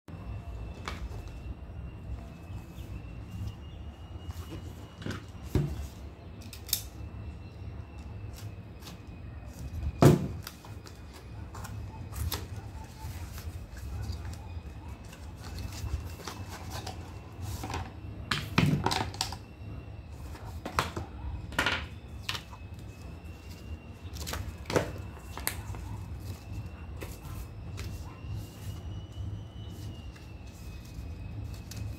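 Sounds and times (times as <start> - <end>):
faint high-pitched whine: 0.1 - 31.9
cardboard box and paper handling: 10.4 - 17.9.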